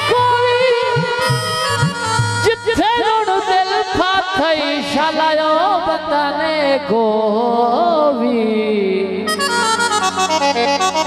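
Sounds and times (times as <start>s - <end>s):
instrument playing quick notes: 0.9s - 2.6s.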